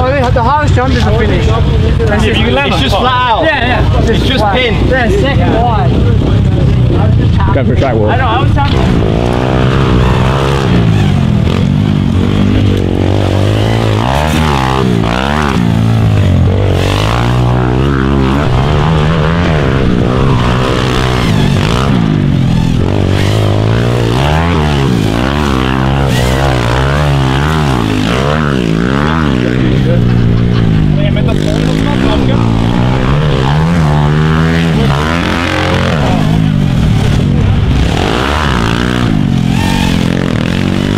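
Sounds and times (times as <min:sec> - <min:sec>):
pit bike engine revving: 0:00.0 - 0:40.9.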